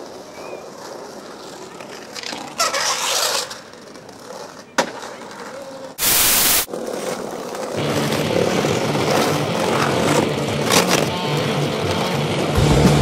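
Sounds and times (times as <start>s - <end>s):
skateboard clacks: 0.0s - 6.0s, 6.7s - 13.0s
skateboard wheels rolling on concrete: 0.0s - 13.0s
burst of hiss: 6.0s - 6.7s.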